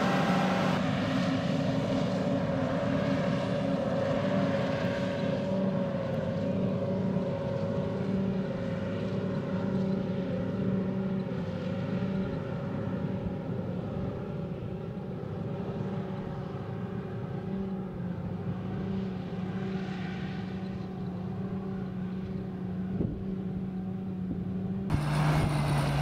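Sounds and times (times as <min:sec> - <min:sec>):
machine drone: 0:00.0 - 0:26.0
steady machine whine: 0:00.0 - 0:26.0.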